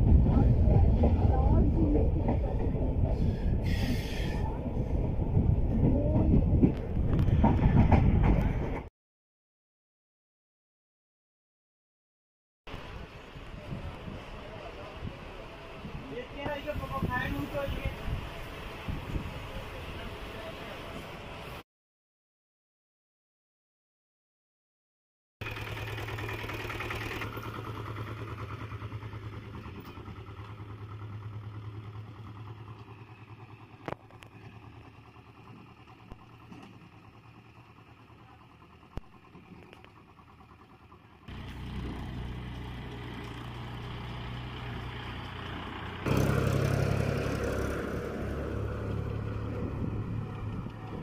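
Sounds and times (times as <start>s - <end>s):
three-wheeled cart engine: 25.4s - 51.0s
tractor engine passing: 25.4s - 51.0s.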